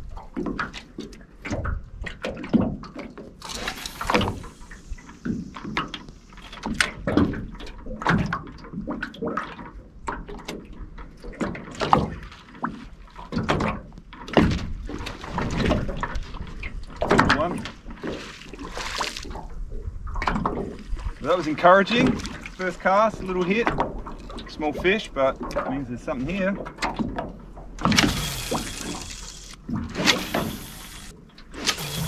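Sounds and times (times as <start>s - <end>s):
waves slapping metal boat hull: 0.0s - 32.0s
brief hiss: 3.5s - 5.7s.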